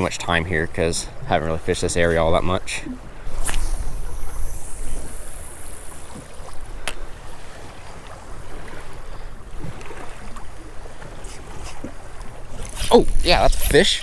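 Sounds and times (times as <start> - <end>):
waves lapping against boat hull: 0.0 - 14.0
sharp click: 3.4 - 3.9.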